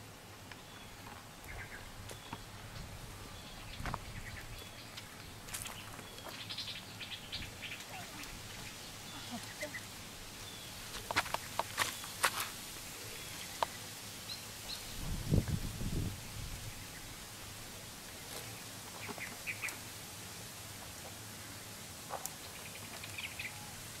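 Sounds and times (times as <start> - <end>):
wooden stakes clicking and knocking: 10.9 - 12.6.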